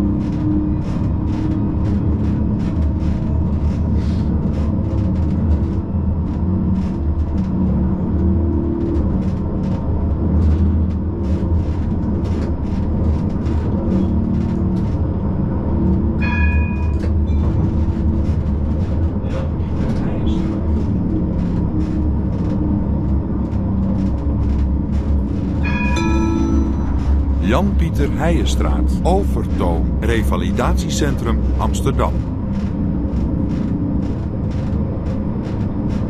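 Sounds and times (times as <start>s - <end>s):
tram rumbling: 0.0s - 36.0s
short high-pitched tone: 25.9s - 29.1s.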